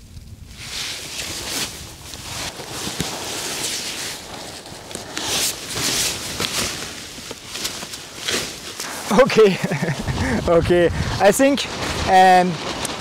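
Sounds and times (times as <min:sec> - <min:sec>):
tent fabric rustling and flapping: 0:00.5 - 0:13.0
wind buffeting microphone: 0:08.9 - 0:13.0.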